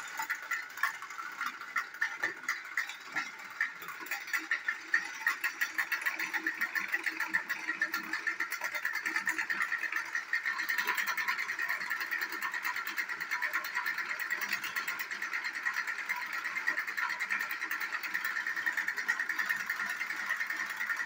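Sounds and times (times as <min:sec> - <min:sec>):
rapid clatter of clicks: 0:00.0 - 0:21.0
toy train motor whir: 0:00.0 - 0:21.0.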